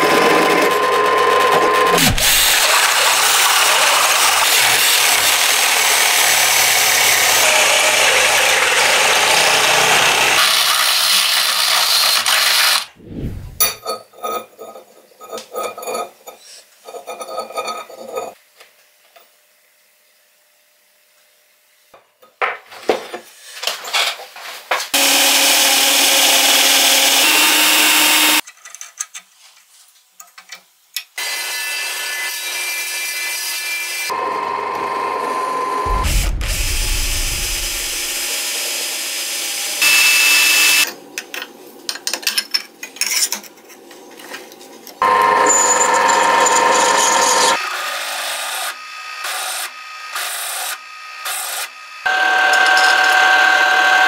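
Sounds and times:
power tools working steel: 0.0 - 13.0, 25.0 - 28.4, 31.2 - 41.0, 45.0 - 54.0
deep hum: 35.9 - 38.3.

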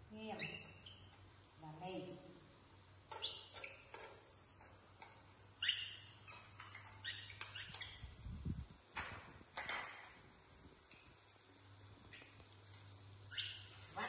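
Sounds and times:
baby monkeys squeaking: 0.4 - 1.1, 3.2 - 3.9, 5.6 - 8.2, 13.3 - 14.0.

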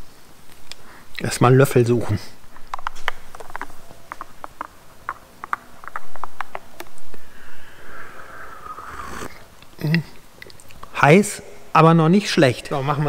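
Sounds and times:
slurping sip of coffee: 7.2 - 9.8.

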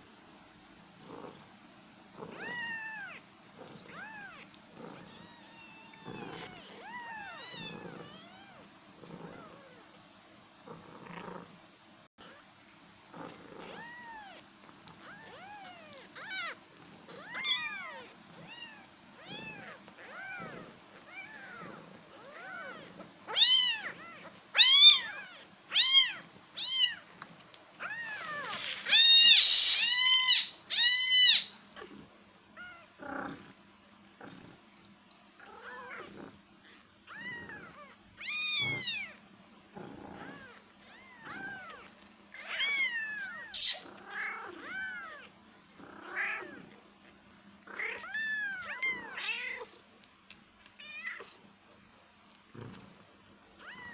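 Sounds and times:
kittens mewing: 2.1 - 9.9, 13.1 - 27.1, 27.8 - 33.5, 35.4 - 46.8, 47.6 - 49.8.

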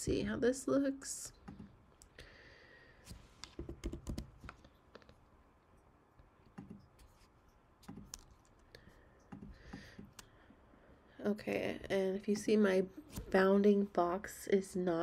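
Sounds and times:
computer keyboard and mouse clicking: 3.4 - 4.7.

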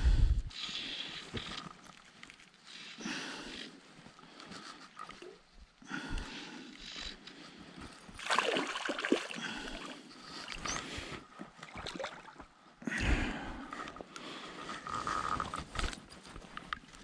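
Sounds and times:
fish splashing at water surface: 8.2 - 9.6.

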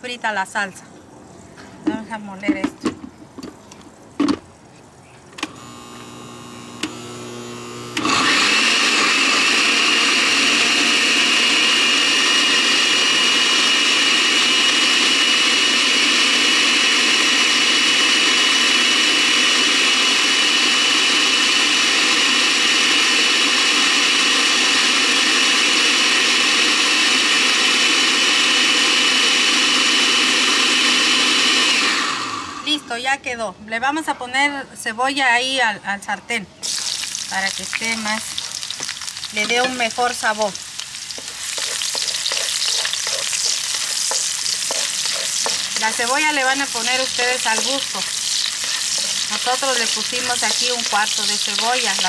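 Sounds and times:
blender running with high whine: 5.4 - 32.9, 41.2 - 52.0.

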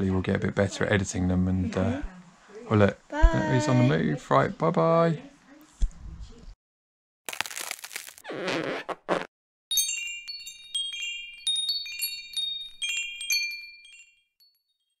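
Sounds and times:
wind chimes tinkling: 9.7 - 15.0.

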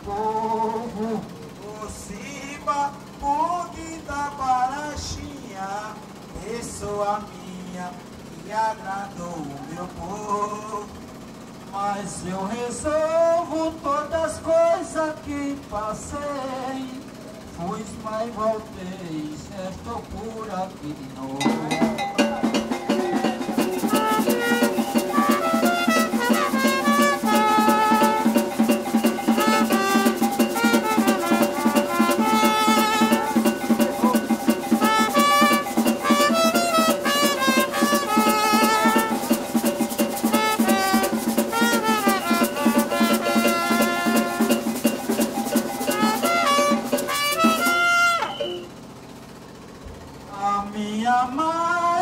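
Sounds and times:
fast dense percussion: 21.4 - 48.8
clarinets playing melody: 21.8 - 48.8.

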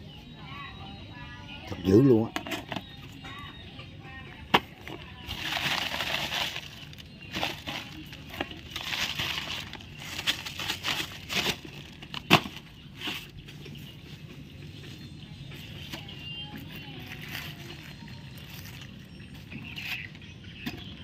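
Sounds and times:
plastic sack rustling: 4.8 - 14.0.

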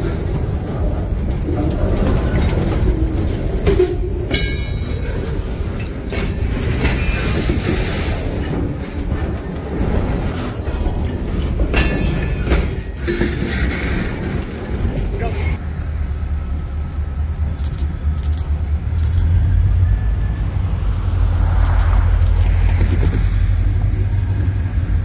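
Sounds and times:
wheels clicking over rails: 0.0 - 15.6
freight train rumbling past: 0.0 - 25.0.

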